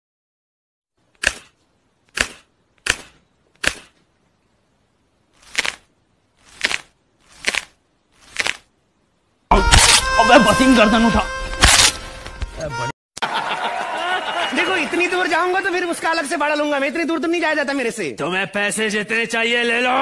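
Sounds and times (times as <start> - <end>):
neck and back cracking: 5.4 - 8.7.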